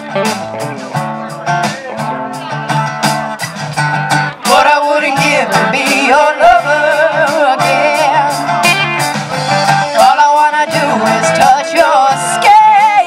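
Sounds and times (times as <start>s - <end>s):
guitars strumming: 0.0s - 13.0s
woman singing: 4.4s - 8.9s, 9.8s - 13.0s.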